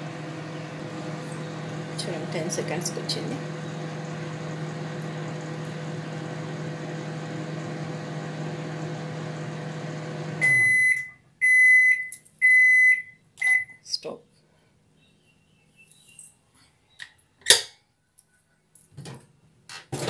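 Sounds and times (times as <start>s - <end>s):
microwave oven humming: 0.0s - 13.8s.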